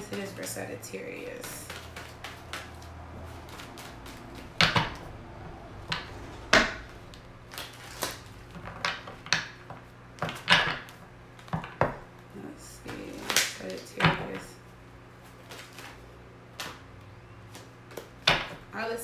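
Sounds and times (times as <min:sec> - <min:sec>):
cards being shuffled: 0:00.0 - 0:05.0, 0:15.1 - 0:18.2.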